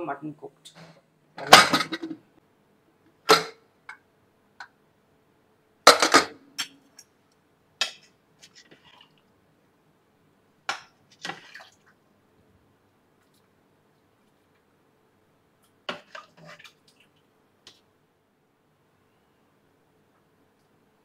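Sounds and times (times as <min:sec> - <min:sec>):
metal pot and lid clattering: 0:01.4 - 0:02.2, 0:05.9 - 0:06.8.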